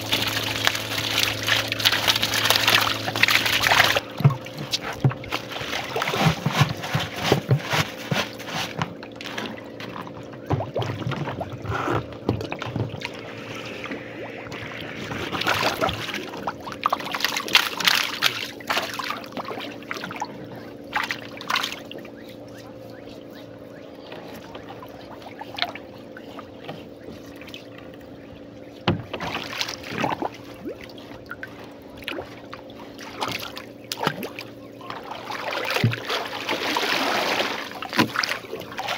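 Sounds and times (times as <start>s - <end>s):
steady low hum: 0.0s - 38.9s
water splashing and trickling: 0.0s - 38.9s
knocks on wooden canoe: 28.8s - 29.2s.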